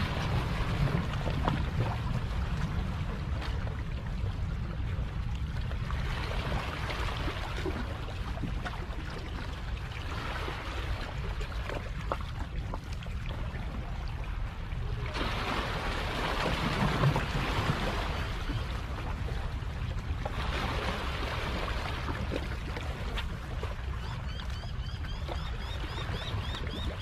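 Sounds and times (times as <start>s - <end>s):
water lapping on rocky shore: 5.5s - 27.0s.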